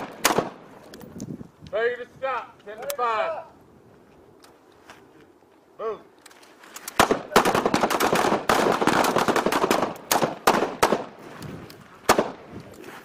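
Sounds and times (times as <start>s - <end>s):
rapid rifle fire: 7.0s - 11.2s.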